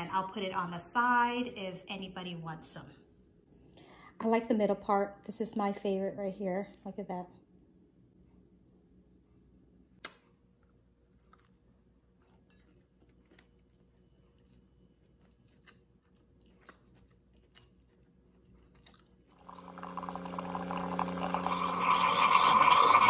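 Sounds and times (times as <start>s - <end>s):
soft chewing: 10.6s - 19.5s
coffee maker pump humming: 19.4s - 23.0s
coffee streaming into a mug: 19.4s - 23.0s.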